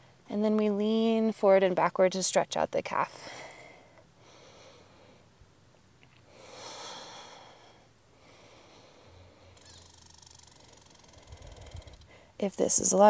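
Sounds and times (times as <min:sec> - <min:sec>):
faint background hiss: 0:00.0 - 0:13.0
person breathing out: 0:06.3 - 0:09.8.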